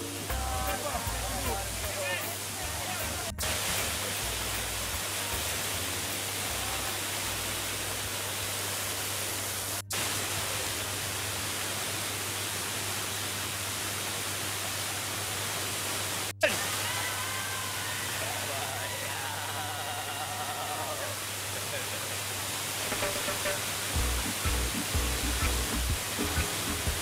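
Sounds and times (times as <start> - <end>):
waterfall rushing over rocks: 0.0 - 27.0.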